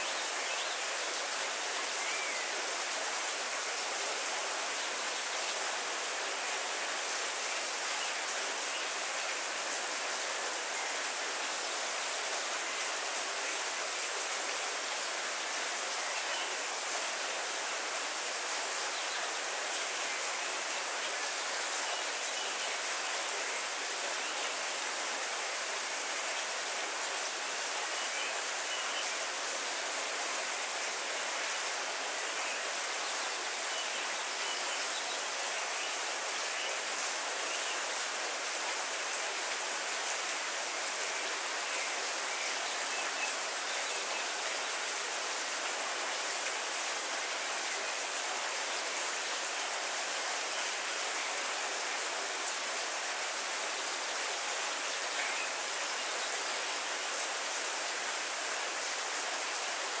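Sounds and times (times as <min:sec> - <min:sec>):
heavy rain on foliage: 0:00.0 - 1:00.0.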